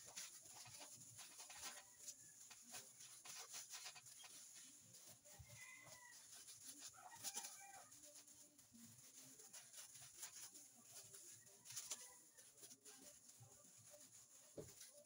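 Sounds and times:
hands rolling dough: 0:00.0 - 0:15.0
plastic gloves rustling: 0:00.0 - 0:15.0.

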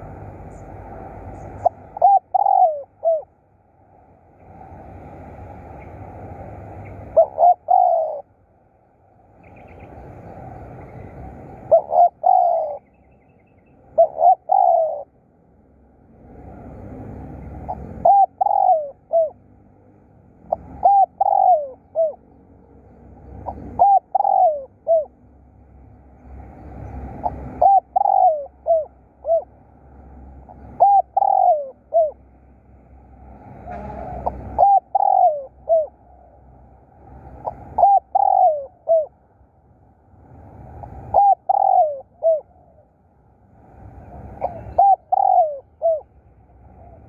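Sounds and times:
dove cooing: 0:00.0 - 0:03.3, 0:05.8 - 0:08.4, 0:09.5 - 0:13.0, 0:13.8 - 0:15.2, 0:17.0 - 0:19.6, 0:20.4 - 0:22.3, 0:23.2 - 0:25.2, 0:26.8 - 0:29.5, 0:30.4 - 0:32.3, 0:33.5 - 0:36.5, 0:37.2 - 0:39.2, 0:40.7 - 0:43.0, 0:43.9 - 0:47.0.

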